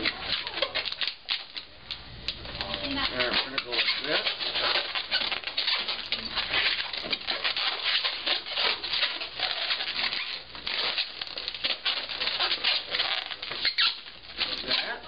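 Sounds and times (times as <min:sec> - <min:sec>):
balloons squeaking and rubbing: 0:00.0 - 0:01.9, 0:02.5 - 0:15.0.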